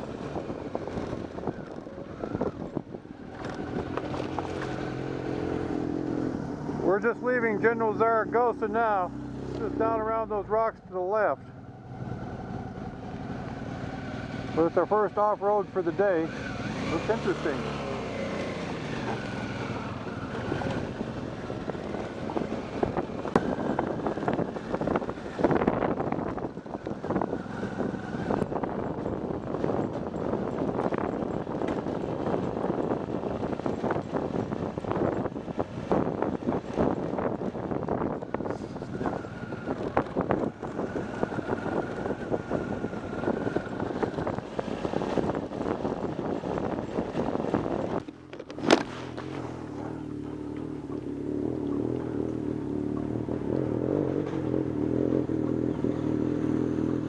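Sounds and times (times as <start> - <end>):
wind buffeting microphone: 0.0 - 10.7, 11.5 - 57.0
motorcycle engine: 0.0 - 57.0
gravel knocks and clatters: 0.3 - 4.9, 43.5 - 50.8
tyres crunching over stones: 3.3 - 4.9.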